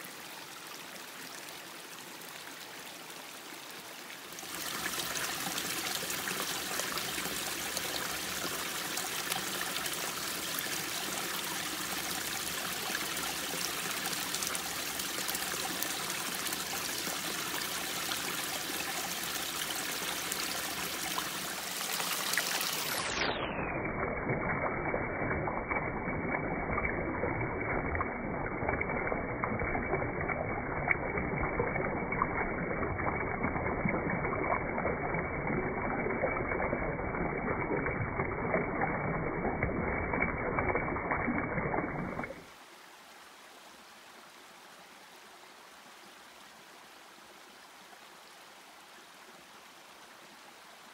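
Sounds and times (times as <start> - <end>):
river water rushing: 0.0 - 23.3.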